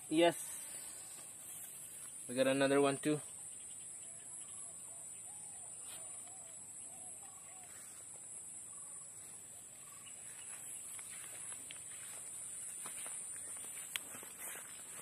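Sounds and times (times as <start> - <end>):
steady high-pitched hiss: 0.0 - 15.0
faint bird calls: 3.2 - 15.0.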